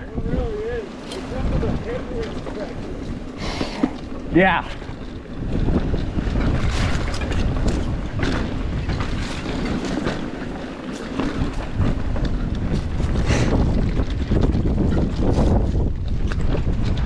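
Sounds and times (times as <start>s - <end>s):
bike clicking and rattling: 0.0s - 17.0s
tyres rumbling on dirt: 0.0s - 17.0s
wind buffeting microphone: 0.0s - 17.0s.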